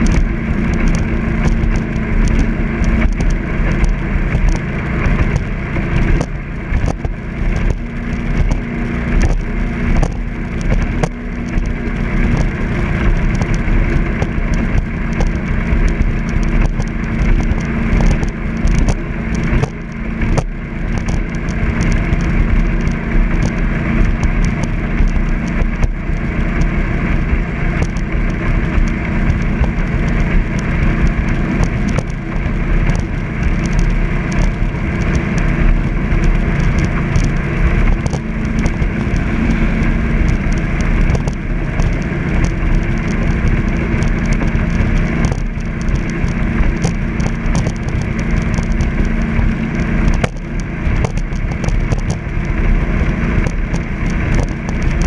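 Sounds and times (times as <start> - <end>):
boat engine drone: 0.0 - 55.0
irregular crackling: 0.0 - 55.0
water rushing: 0.0 - 55.0.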